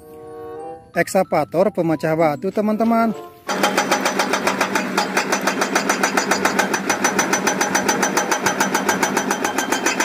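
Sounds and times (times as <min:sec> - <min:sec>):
excavator engine hum: 0:03.1 - 0:10.0
rapid even knocking: 0:03.5 - 0:10.0.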